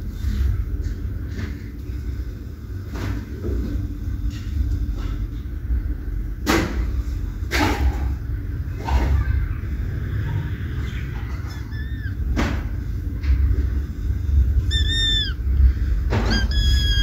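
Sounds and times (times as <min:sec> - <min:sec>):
kitten meowing: 0:11.5 - 0:12.4, 0:14.6 - 0:15.4, 0:16.1 - 0:17.0.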